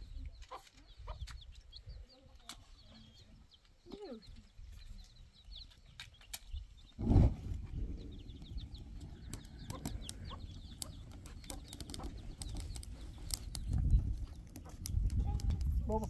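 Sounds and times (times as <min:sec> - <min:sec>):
chickens clucking: 0:00.2 - 0:04.6, 0:08.2 - 0:16.0
low rumble: 0:07.0 - 0:11.1
high bird chirps: 0:07.7 - 0:14.8
sharp clicks: 0:09.2 - 0:16.0.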